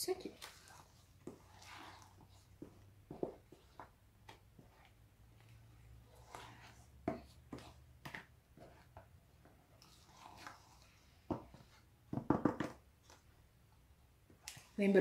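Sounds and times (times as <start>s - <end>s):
spoon scraping metal bowl: 0.3s - 2.6s.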